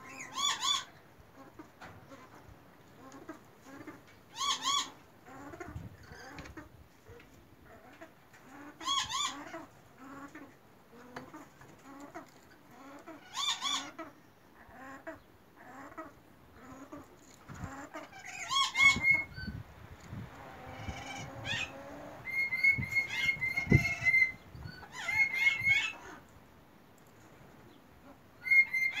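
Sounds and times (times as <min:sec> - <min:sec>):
parrot chattering calls: 0:18.0 - 0:19.5.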